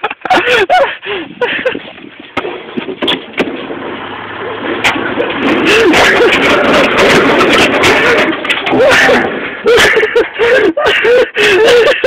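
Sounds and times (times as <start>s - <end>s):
vehicle engine running: 1.1s - 10.6s
sharp handling knocks: 1.7s - 4.0s.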